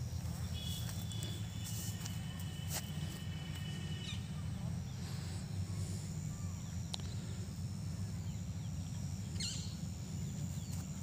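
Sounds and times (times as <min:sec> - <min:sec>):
steady low rumble: 0:00.0 - 0:11.0
bird chirps: 0:08.1 - 0:10.9.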